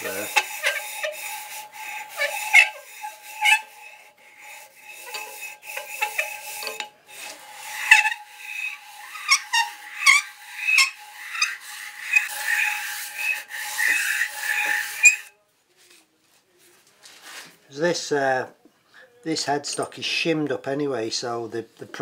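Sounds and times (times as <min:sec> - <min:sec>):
bearing shells scraping on abrasive paper: 0:00.0 - 0:16.0.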